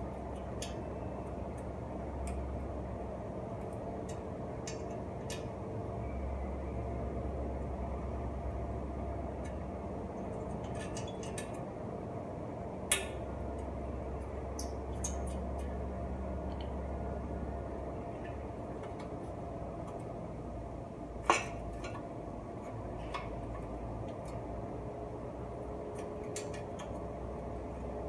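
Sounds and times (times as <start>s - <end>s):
steady low hum: 0.0s - 28.0s
hand tools clicking on metal: 25.9s - 27.0s.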